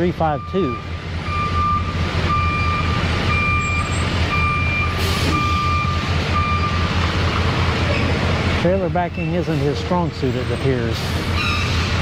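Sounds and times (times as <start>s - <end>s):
truck backup alarm beeping: 0.0s - 7.2s.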